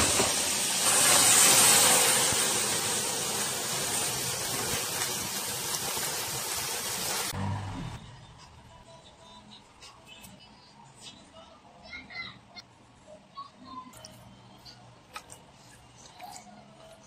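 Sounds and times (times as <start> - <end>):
meat sizzling in a frying pan: 0.0 - 7.4.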